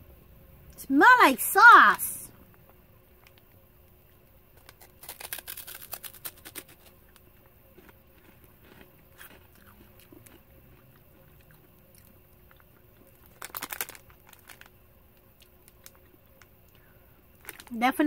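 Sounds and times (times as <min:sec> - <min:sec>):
corn puff crunching: 0:04.5 - 0:17.8.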